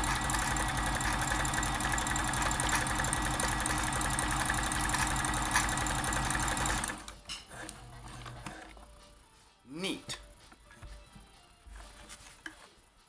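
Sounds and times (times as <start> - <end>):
sewing machine running: 0.0 - 8.7.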